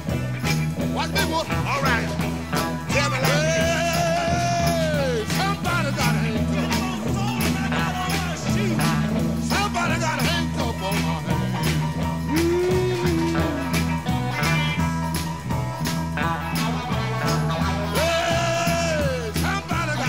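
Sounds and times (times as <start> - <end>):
electric blues band: 0.0 - 20.0
guitar note bending: 11.7 - 14.8.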